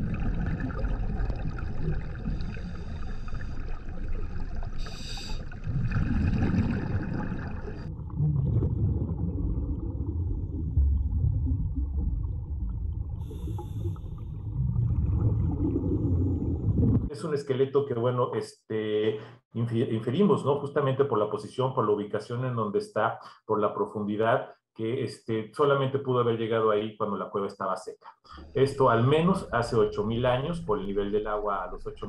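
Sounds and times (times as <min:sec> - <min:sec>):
bubbling: 0:00.0 - 0:17.1, 0:28.3 - 0:32.0
low underwater rumbling: 0:00.0 - 0:17.1, 0:28.3 - 0:32.0
diver breathing: 0:02.2 - 0:05.7, 0:13.2 - 0:14.3.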